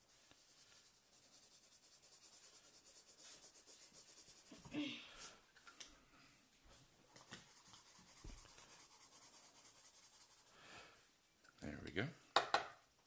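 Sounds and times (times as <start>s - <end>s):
marker scratching on paper: 0.0s - 4.7s, 7.2s - 10.5s.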